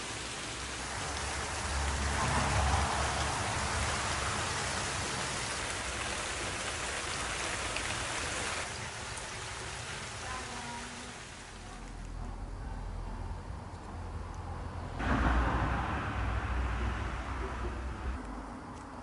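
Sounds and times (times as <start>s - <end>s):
steady rain falling: 0.0s - 12.6s
low rumble: 14.8s - 18.6s.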